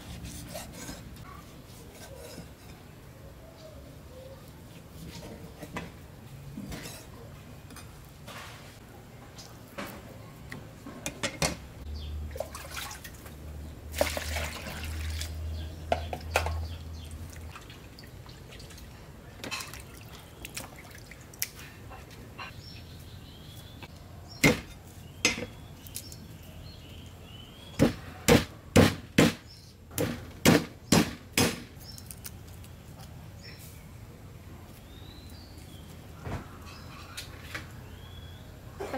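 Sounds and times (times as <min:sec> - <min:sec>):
water splashing and dripping: 0:12.2 - 0:15.6, 0:16.2 - 0:21.7.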